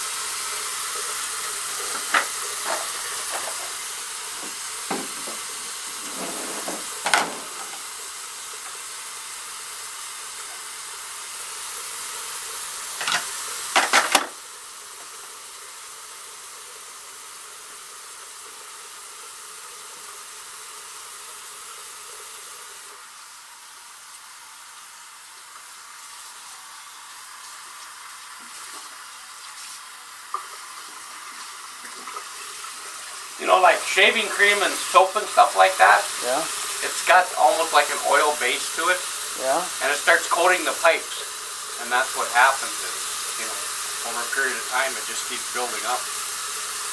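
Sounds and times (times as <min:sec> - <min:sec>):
water running: 0:00.0 - 0:46.9
clanks on drain pipes: 0:01.7 - 0:07.9, 0:13.0 - 0:14.4.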